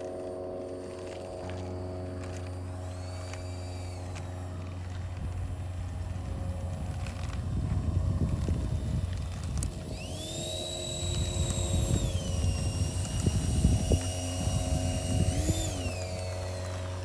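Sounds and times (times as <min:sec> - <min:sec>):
model jet electric fans whining: 0:00.0 - 0:17.0
wind rumble on microphone: 0:04.4 - 0:17.0.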